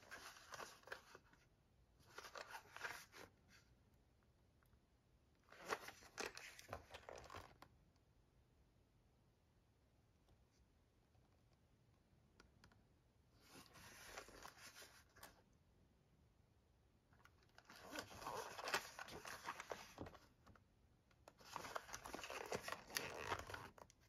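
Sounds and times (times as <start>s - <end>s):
scratchy cardboard rustling: 0.0s - 1.4s, 2.0s - 3.6s, 13.4s - 15.4s, 17.6s - 20.3s, 21.3s - 23.9s.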